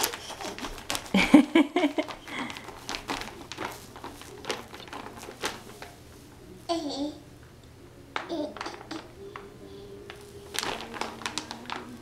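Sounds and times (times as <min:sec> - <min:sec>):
feet stamping on crinkly mat: 0:00.0 - 0:06.0, 0:10.1 - 0:12.0.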